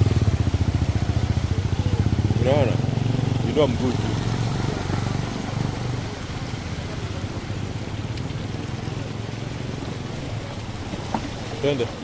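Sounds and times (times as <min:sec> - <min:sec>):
motorcycle engine running: 0:00.0 - 0:08.1
floodwater rushing and splashing: 0:00.0 - 0:12.0.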